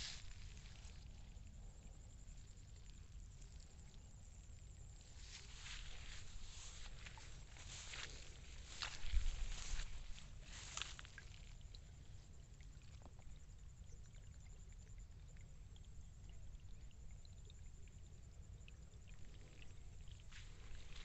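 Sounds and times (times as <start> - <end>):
faint low rumble: 0.0 - 21.0
plants rustling: 5.2 - 11.5.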